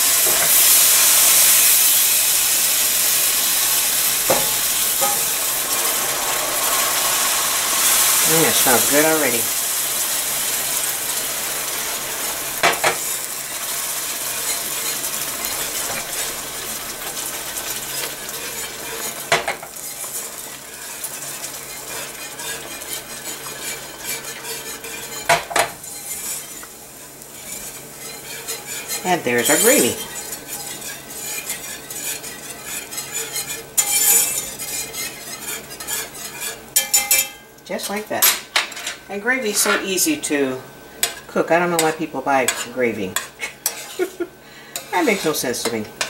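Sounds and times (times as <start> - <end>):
simmering gravy hiss: 0.0 - 38.2, 39.0 - 46.0
metal clink on pan: 4.3 - 5.3, 35.8 - 37.5
wire whisk scraping a pan: 4.3 - 9.5, 10.4 - 37.3, 41.8 - 45.8.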